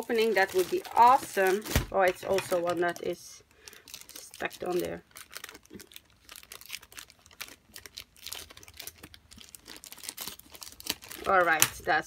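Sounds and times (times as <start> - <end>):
plastic wrap crinkling: 0.0 - 12.0
scissors cutting plastic: 6.4 - 11.9.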